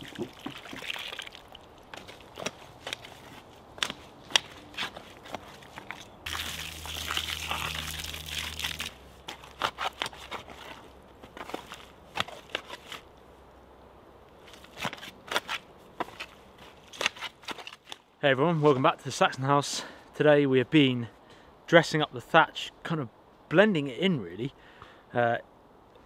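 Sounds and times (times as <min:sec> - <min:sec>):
spade crunching into dry soil: 0:00.0 - 0:13.1.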